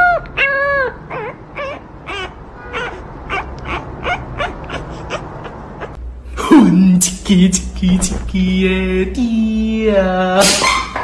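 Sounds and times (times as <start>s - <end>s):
puppy yipping and whimpering: 0.0s - 6.0s.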